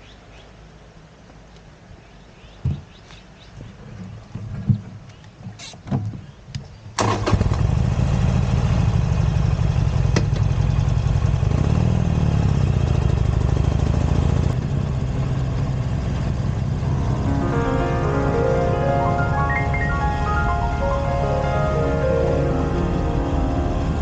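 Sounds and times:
motorcycle engine starting and idling: 7.0s - 17.1s.

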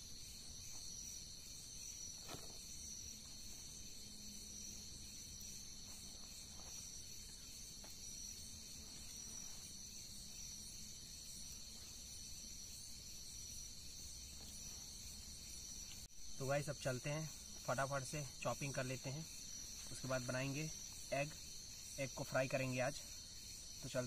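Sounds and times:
crickets trilling: 0.0s - 24.0s.

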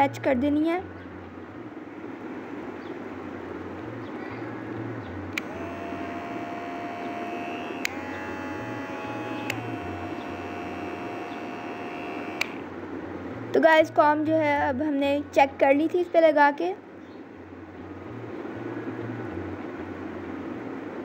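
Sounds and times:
hair clipper buzzing: 5.4s - 12.7s
clipper switch click: 12.4s - 12.6s.

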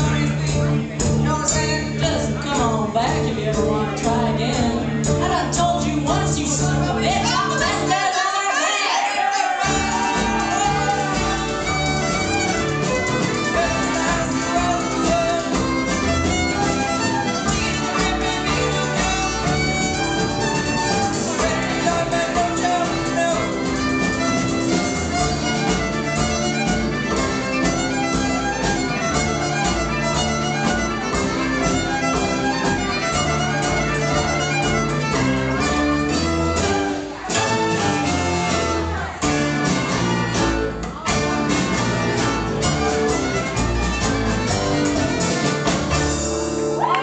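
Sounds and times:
upright bass: 0.0s - 8.2s, 9.6s - 47.0s
acoustic guitar: 0.0s - 8.6s, 9.4s - 47.0s
drums: 0.0s - 47.0s
fiddle melody: 9.6s - 47.0s.

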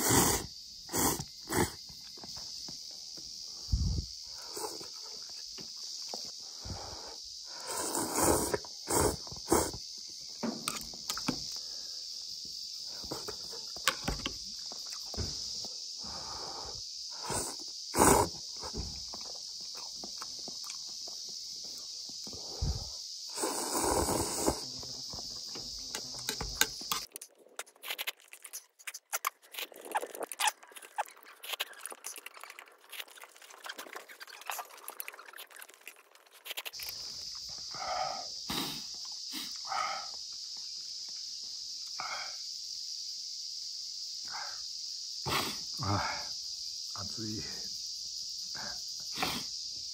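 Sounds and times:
loud slurp of noodles: 0.0s - 1.8s, 7.6s - 9.8s, 17.2s - 18.4s, 22.6s - 24.7s
person chewing: 19.1s - 21.2s, 27.0s - 37.0s.

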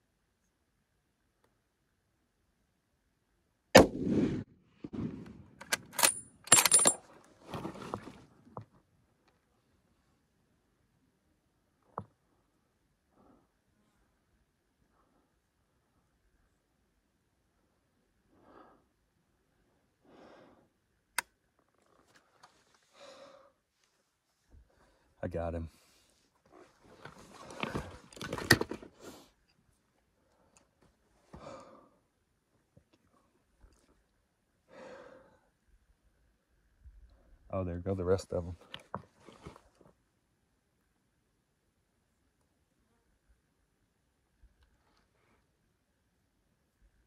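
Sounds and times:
rumble after gunshot: 3.8s - 5.6s
rifle shot: 3.8s - 6.7s
rifle bolt metallic clicks: 5.6s - 7.0s
slow breathing: 18.2s - 20.9s, 22.6s - 24.0s, 30.2s - 32.1s, 34.6s - 35.7s.

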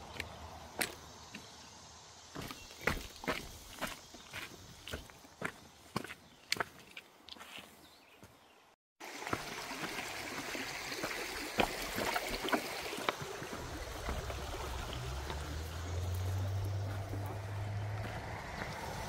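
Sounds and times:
stream rushing: 9.0s - 19.0s.

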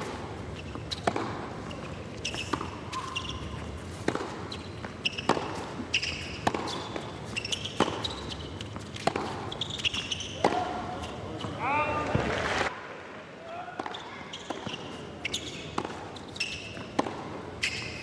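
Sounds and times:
tennis ball bouncing: 0.0s - 12.2s, 13.8s - 18.0s
shoes squeaking on court: 0.0s - 12.3s, 13.8s - 18.0s
tennis racket strikes: 5.2s - 8.1s, 9.0s - 9.5s.

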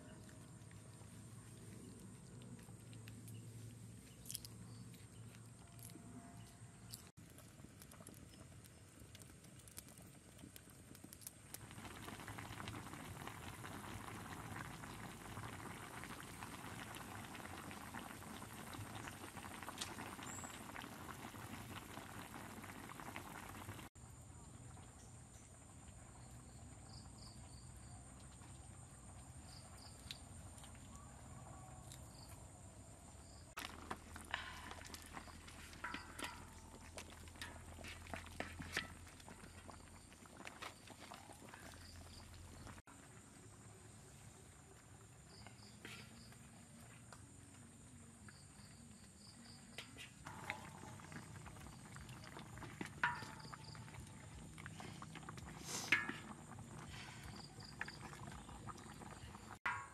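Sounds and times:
insects droning: 11.5s - 59.9s
spatula scraping in a wok: 54.7s - 58.0s.

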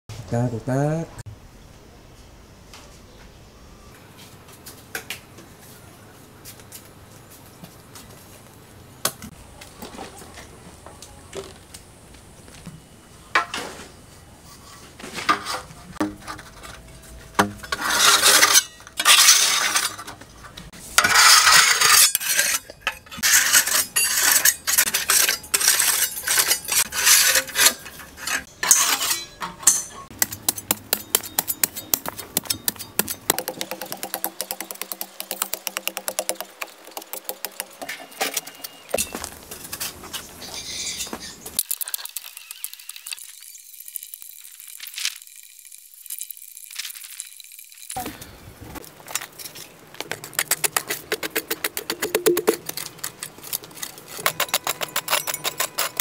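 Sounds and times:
metal tools scraping rubbly ground: 13.4s - 48.0s, 48.8s - 56.0s.

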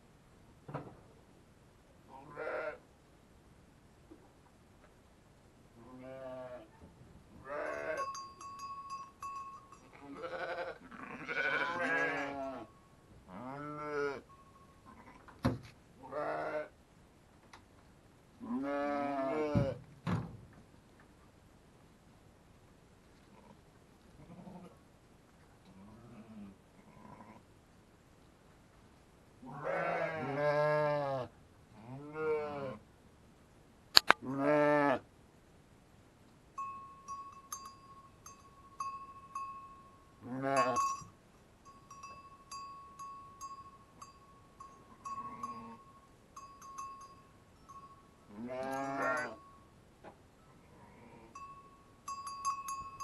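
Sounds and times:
sheep bleating: 2.1s - 2.8s, 9.9s - 12.7s, 16.0s - 16.7s, 29.5s - 31.3s, 40.2s - 40.8s, 48.3s - 49.4s
small bell ringing: 7.7s - 10.0s, 36.6s - 49.7s, 51.4s - 53.0s.

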